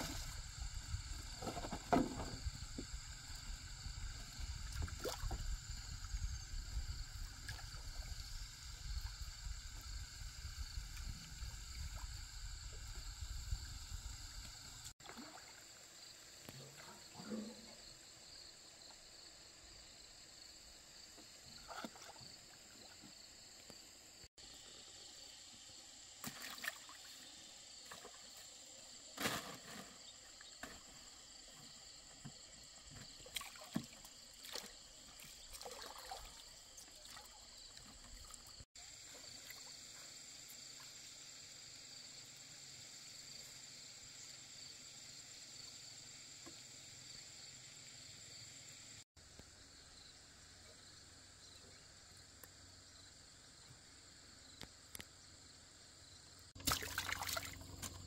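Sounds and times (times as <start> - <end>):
water splashing: 4.3 - 5.6, 14.8 - 15.8, 26.2 - 27.2, 33.2 - 38.6, 56.6 - 58.0
water trickling off a net: 33.2 - 38.5, 56.6 - 58.0.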